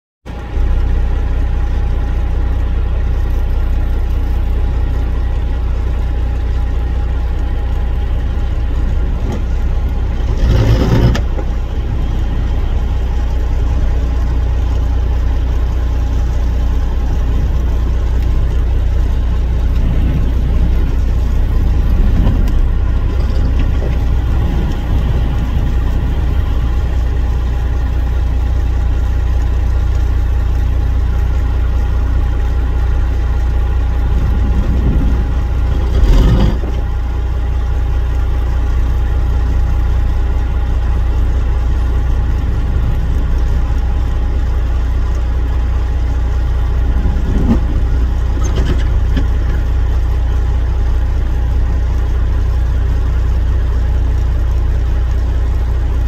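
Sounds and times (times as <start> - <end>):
wind buffeting microphone: 17.2 - 28.2, 33.6 - 37.1, 41.2 - 44.7.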